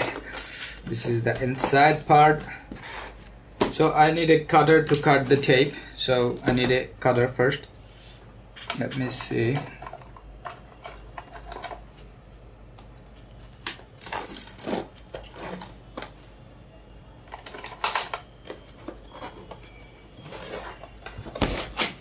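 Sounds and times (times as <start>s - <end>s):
cardboard box scraping and rustling: 20.2s - 22.0s.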